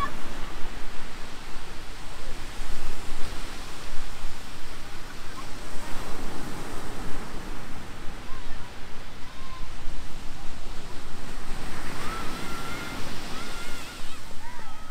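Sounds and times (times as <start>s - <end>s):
surf breaking on beach: 0.0s - 14.9s
wind on microphone: 0.0s - 14.9s.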